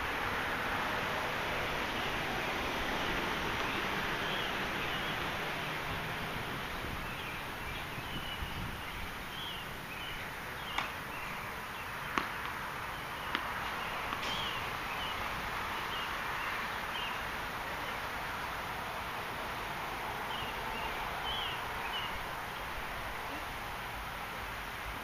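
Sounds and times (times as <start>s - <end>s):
steady outdoor hiss: 0.0s - 25.0s
bird-like chirps: 6.8s - 15.2s
distant tennis ball strikes: 10.7s - 11.0s, 12.1s - 12.6s, 13.2s - 14.7s.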